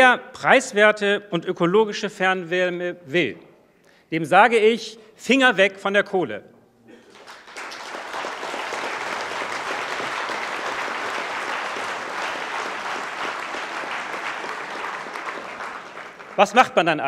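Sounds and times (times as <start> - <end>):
audience applause: 7.0 - 16.7.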